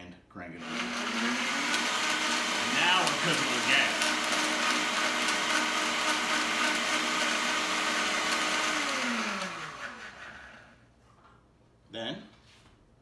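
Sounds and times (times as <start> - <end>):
blender running: 0.6 - 10.8.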